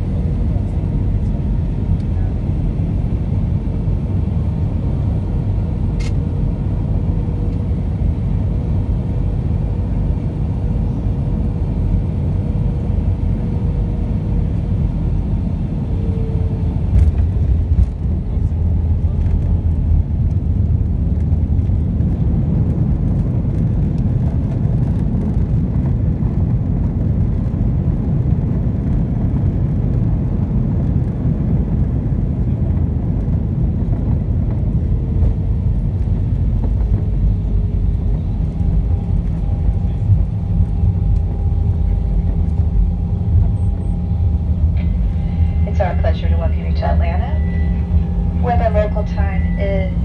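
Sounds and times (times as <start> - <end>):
jet landing rumble in cabin: 0.0 - 50.0
faint steady whine: 32.5 - 50.0.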